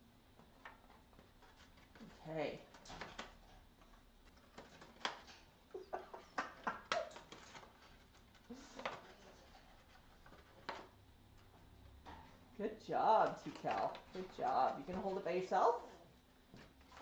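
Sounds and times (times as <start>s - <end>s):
stiff paper crinkling and clicking: 0.3s - 5.6s, 6.3s - 12.0s, 13.2s - 15.2s
parrot chewing paper bag: 0.3s - 5.9s, 6.5s - 12.5s, 13.2s - 17.0s.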